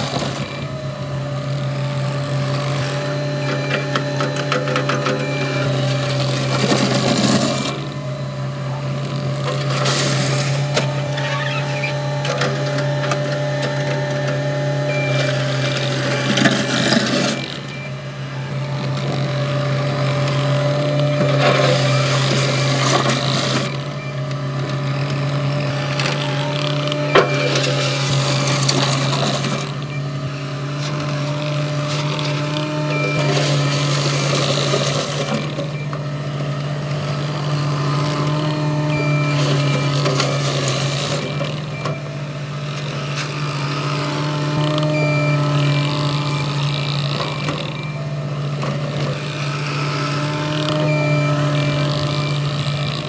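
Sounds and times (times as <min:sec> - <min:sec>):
diesel engine running: 0:00.0 - 0:53.0
gravel scraping and rattling: 0:02.3 - 0:08.0, 0:09.0 - 0:17.8, 0:30.6 - 0:35.8.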